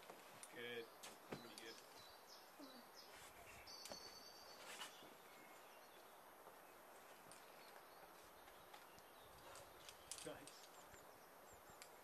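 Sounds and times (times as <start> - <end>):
faint outdoor ambience: 0.0 - 12.0.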